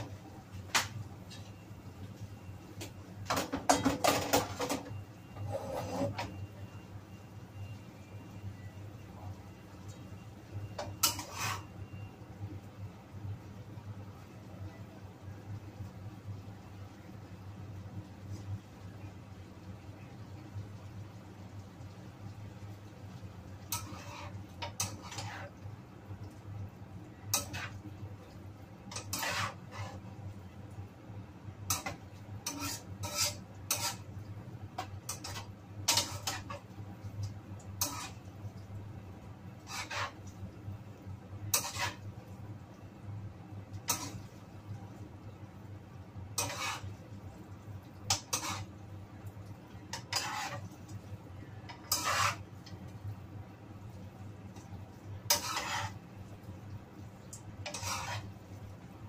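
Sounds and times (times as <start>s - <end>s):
spatula scraping a pan: 3.3s - 6.5s, 10.6s - 12.1s, 23.6s - 25.7s, 27.1s - 30.3s, 31.6s - 38.7s, 39.5s - 40.5s, 41.4s - 42.4s, 43.7s - 45.0s, 46.2s - 48.9s, 49.7s - 53.0s, 53.8s - 58.8s.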